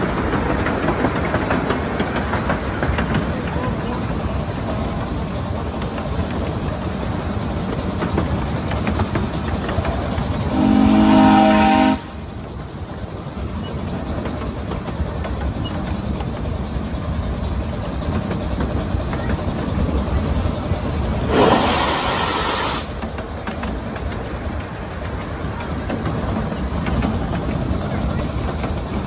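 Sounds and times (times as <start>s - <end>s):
miniature train running on track: 0.0s - 29.0s
steam whistle blast: 10.5s - 12.1s.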